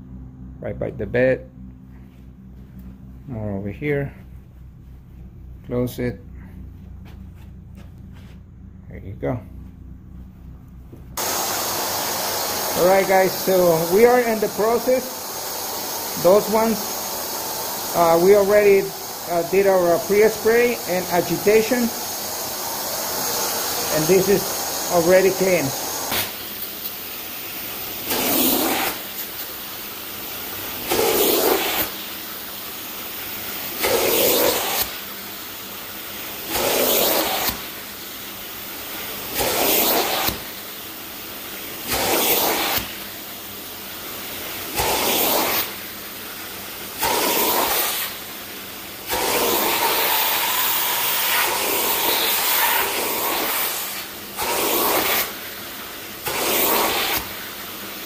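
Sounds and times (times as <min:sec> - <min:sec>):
spray and suction surge: 0:11.2 - 0:27.0, 0:27.8 - 0:29.5, 0:30.8 - 0:32.1, 0:33.7 - 0:35.0, 0:36.4 - 0:37.8, 0:39.1 - 0:40.6, 0:41.8 - 0:43.0, 0:44.6 - 0:45.8, 0:46.9 - 0:48.2, 0:49.0 - 0:55.4, 0:56.2 - 0:57.6
upholstery extraction tool suction: 0:11.2 - 0:27.0, 0:28.0 - 0:29.4, 0:30.8 - 0:32.0, 0:33.8 - 0:35.0, 0:36.4 - 0:37.7, 0:39.2 - 0:40.6, 0:41.8 - 0:43.0, 0:44.7 - 0:45.8, 0:47.0 - 0:48.2, 0:49.1 - 0:55.4, 0:56.2 - 0:57.5.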